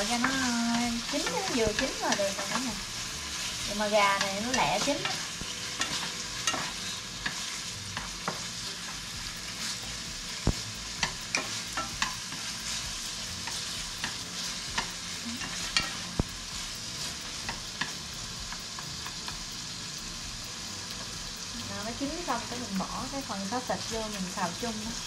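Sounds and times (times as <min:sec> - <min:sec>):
chicken sizzling in hot oil: 0:00.0 - 0:25.0
utensil clicking against pan: 0:00.0 - 0:25.0.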